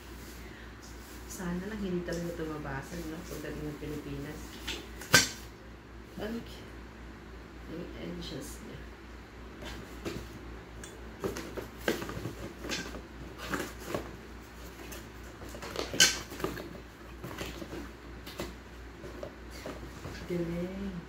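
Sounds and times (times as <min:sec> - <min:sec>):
cardboard box being handled: 0:11.2 - 0:20.4.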